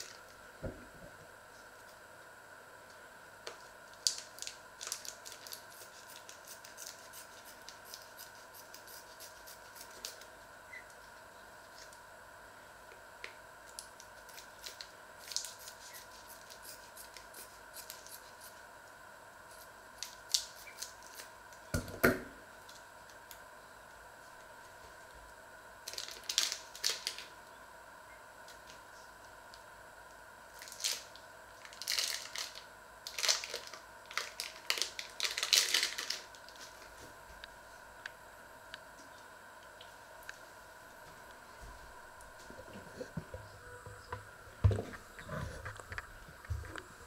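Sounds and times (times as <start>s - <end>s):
plastic packaging crinkling: 3.9s - 8.1s, 25.8s - 27.3s, 30.6s - 37.0s.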